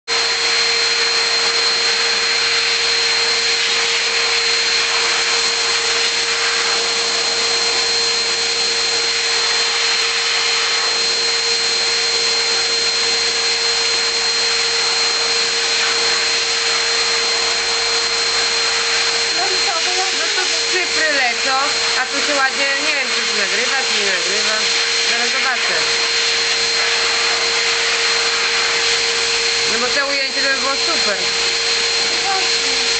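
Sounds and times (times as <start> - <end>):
electric clipper humming: 14.2 - 32.9.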